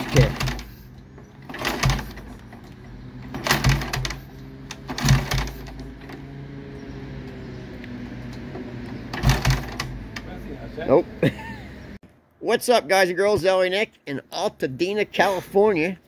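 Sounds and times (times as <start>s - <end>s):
motorcycle engine turning over: 0.0s - 10.4s.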